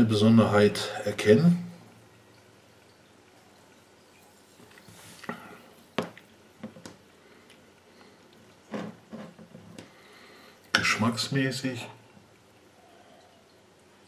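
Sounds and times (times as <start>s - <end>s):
person sipping and swallowing: 4.7s - 6.2s.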